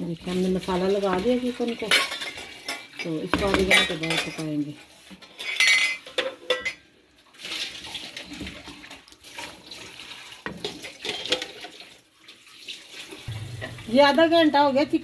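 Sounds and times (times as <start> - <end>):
spatula scraping and squelching in pan: 0.1 - 6.2.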